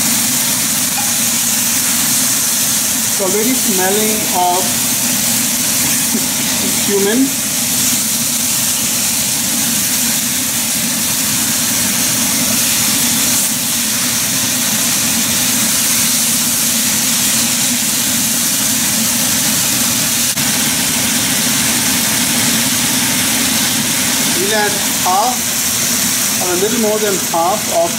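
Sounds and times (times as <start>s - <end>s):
chicken sizzling in a pan: 0.0s - 27.9s.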